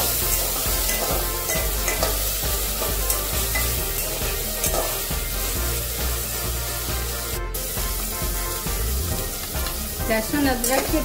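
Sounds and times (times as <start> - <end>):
metal spatula scraping pot: 0.0 - 5.6
onions sizzling in hot oil: 0.0 - 11.0.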